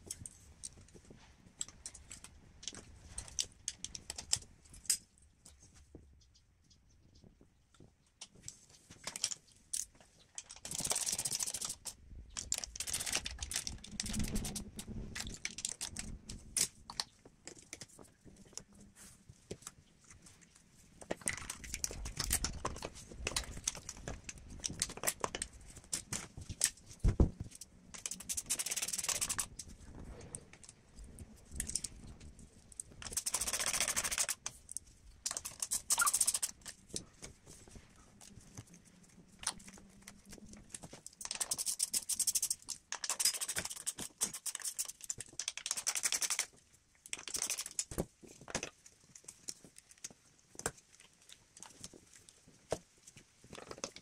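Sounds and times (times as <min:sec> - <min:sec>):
metal parts clicking and rattling: 0:09.0 - 0:18.0, 0:27.5 - 0:29.7, 0:32.8 - 0:37.0, 0:39.4 - 0:46.5, 0:47.1 - 0:48.7.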